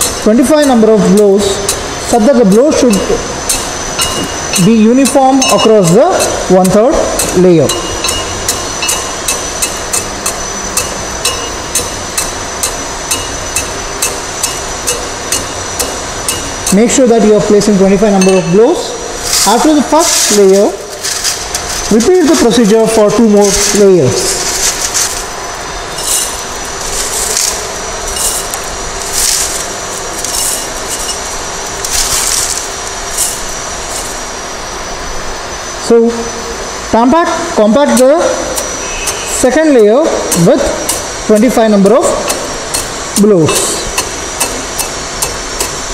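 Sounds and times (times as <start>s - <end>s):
steady background hiss: 0.0s - 45.9s
gravel rattling into a measure: 19.2s - 25.4s, 26.0s - 34.2s.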